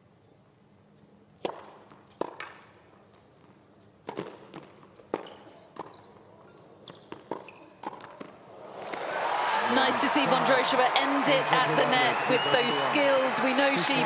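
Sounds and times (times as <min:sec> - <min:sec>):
rackets striking tennis ball: 0:01.4 - 0:02.9, 0:04.0 - 0:06.0
tennis ball bouncing: 0:01.4 - 0:03.3, 0:04.0 - 0:06.1, 0:06.8 - 0:09.0.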